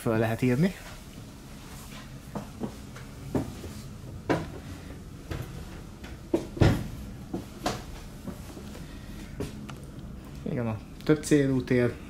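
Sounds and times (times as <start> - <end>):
low hum inside tram car: 0.0 - 12.0
footsteps thudding: 2.3 - 9.6.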